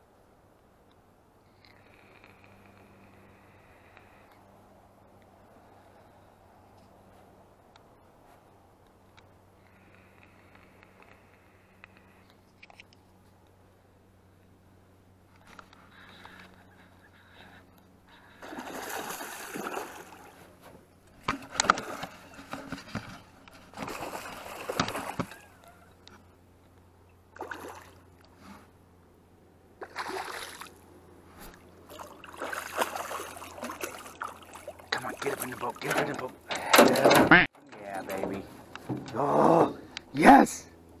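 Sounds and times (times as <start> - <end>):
fish splashing and thrashing in water: 18.4 - 20.4, 21.2 - 23.0, 23.6 - 25.5, 29.8 - 30.8, 31.9 - 36.2.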